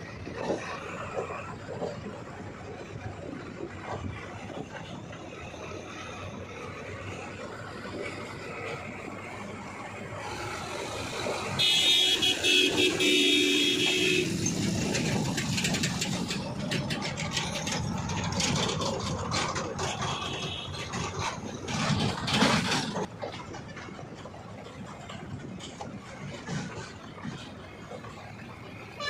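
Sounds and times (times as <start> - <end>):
road traffic engines: 0.0 - 29.0
vehicle horn: 11.5 - 14.4, 19.8 - 21.0.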